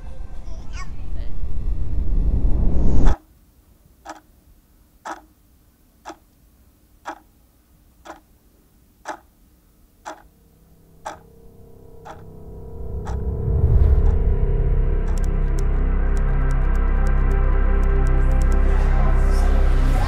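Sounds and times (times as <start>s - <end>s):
clock-like ticking: 4.1s - 4.3s, 5.0s - 5.4s, 6.0s - 6.3s, 7.0s - 7.3s, 8.0s - 8.3s, 9.0s - 9.3s, 10.0s - 10.3s, 11.0s - 14.2s, 15.1s - 18.6s
faint synth drone: 10.3s - 20.0s.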